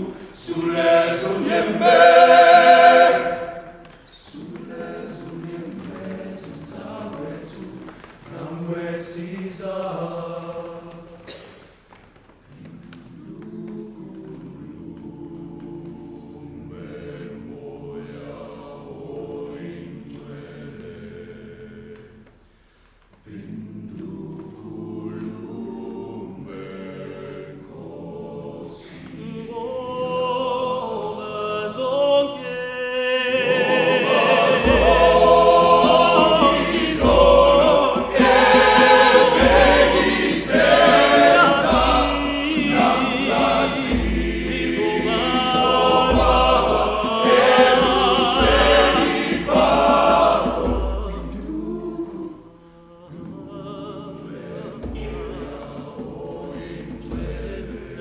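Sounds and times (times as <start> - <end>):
male choir singing: 0.0 - 11.4, 12.6 - 22.3, 23.2 - 58.0
deep beat: 33.4 - 52.5, 54.2 - 58.0.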